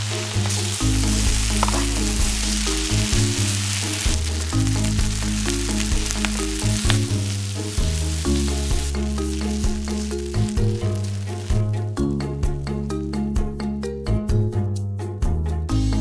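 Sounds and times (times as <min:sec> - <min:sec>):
food sizzling in a frying pan: 0:00.0 - 0:11.7
stirring clicks: 0:00.0 - 0:11.7
background music: 0:00.0 - 0:16.0.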